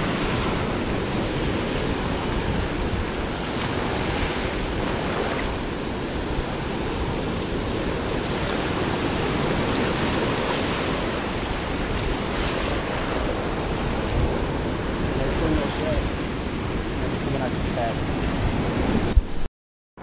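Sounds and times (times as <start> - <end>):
ocean surf washing on sand: 0.0 - 19.5.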